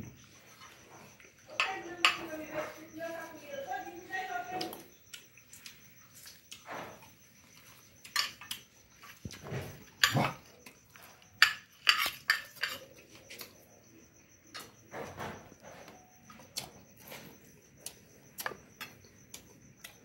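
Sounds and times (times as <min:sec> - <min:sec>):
chewing: 0:00.2 - 0:01.6, 0:04.6 - 0:13.7, 0:15.6 - 0:20.0
metal spoon scraping glass plate: 0:11.4 - 0:12.9.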